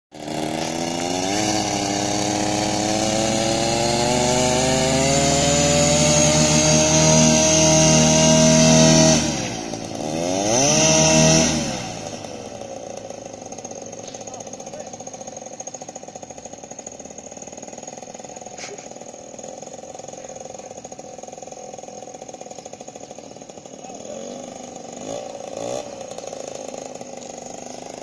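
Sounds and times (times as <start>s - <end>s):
paramotor engine revving: 0.1s - 28.0s.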